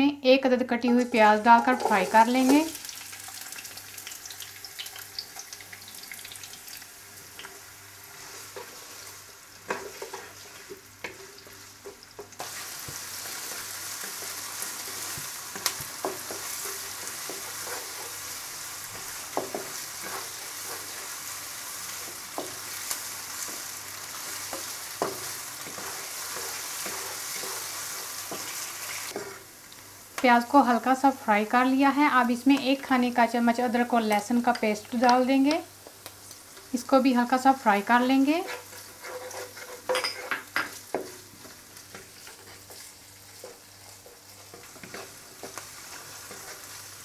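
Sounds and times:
onion sizzling in oil: 0.8s - 47.0s
wooden spatula scraping pan: 8.1s - 18.3s, 18.9s - 21.2s, 24.2s - 29.5s, 38.1s - 46.8s.

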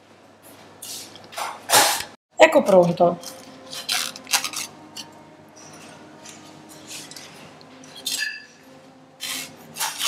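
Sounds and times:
metal spatulas scraping a metal tin: 6.7s - 8.6s, 9.2s - 10.0s.

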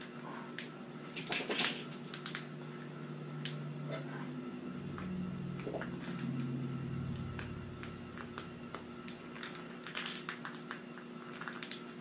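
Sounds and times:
plastic pieces clicking and crinkling: 0.6s - 2.5s, 8.2s - 12.0s
low hum: 1.8s - 10.6s.

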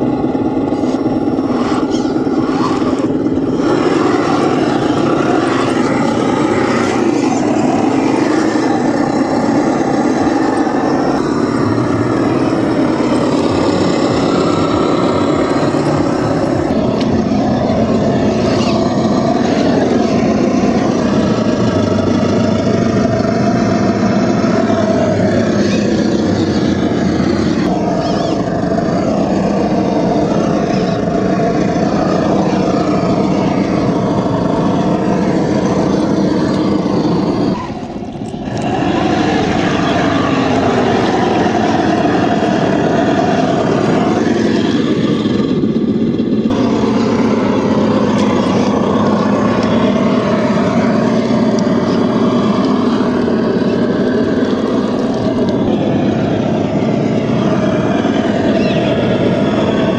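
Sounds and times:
truck engine revving: 0.0s - 59.9s.

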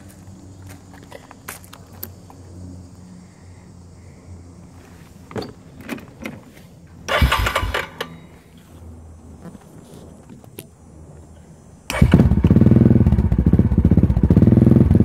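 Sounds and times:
electric starter cranking engine: 7.1s - 8.2s, 11.9s - 13.6s.

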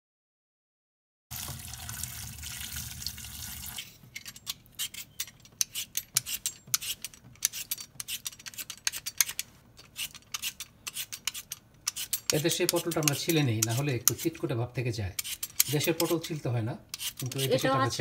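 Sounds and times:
peeler scraping vegetable skin: 3.8s - 14.5s, 15.1s - 18.0s.

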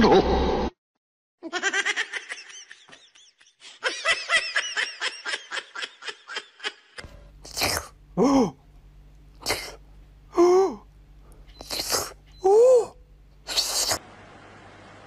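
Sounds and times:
high-pitched laughter: 1.4s - 7.0s.

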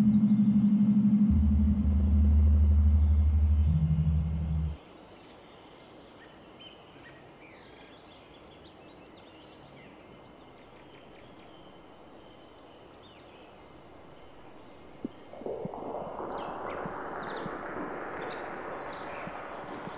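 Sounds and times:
low synth drone: 0.0s - 4.8s, 15.1s - 19.9s.

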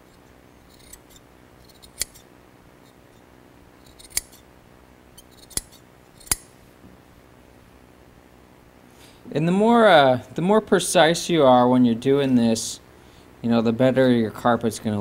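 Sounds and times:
scissors snipping: 0.7s - 2.2s, 3.8s - 4.4s, 5.2s - 6.4s.

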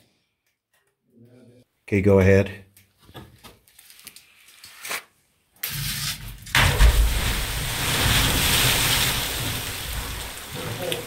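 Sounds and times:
rumble of falling object: 6.6s - 10.9s
big splash into water: 6.6s - 11.0s
echoing churning water: 6.7s - 11.0s.

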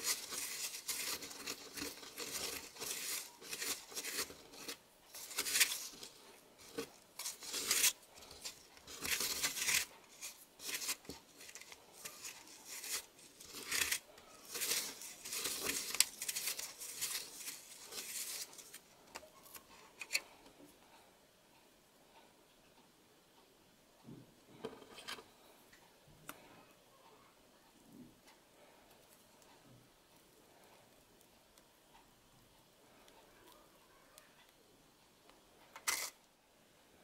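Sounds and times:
scraping gritty dough on tray: 0.0s - 18.9s.

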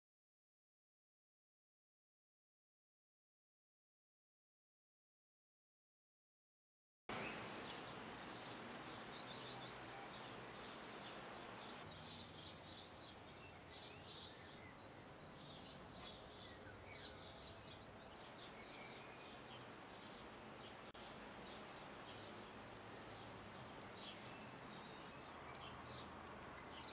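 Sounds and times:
small birds chirping: 7.1s - 26.9s
steady outdoor hiss: 7.1s - 26.9s.

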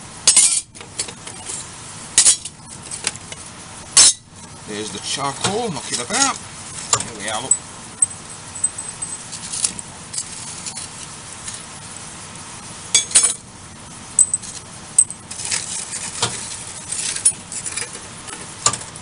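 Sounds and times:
charcoal rustling: 4.3s - 12.4s, 13.9s - 19.0s.

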